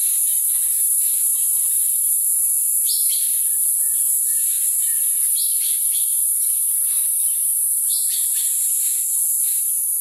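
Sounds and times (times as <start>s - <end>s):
cicadas droning: 0.0s - 10.0s
bird chirps: 7.2s - 8.6s.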